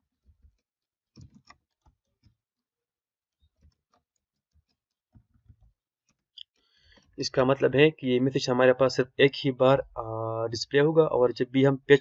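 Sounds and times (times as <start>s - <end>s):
faint keyboard typing: 0.4s - 2.4s.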